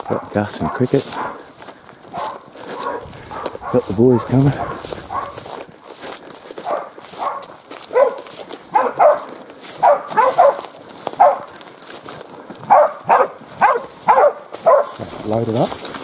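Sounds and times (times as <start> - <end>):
dogs barking: 0.0 - 11.7, 12.6 - 15.6.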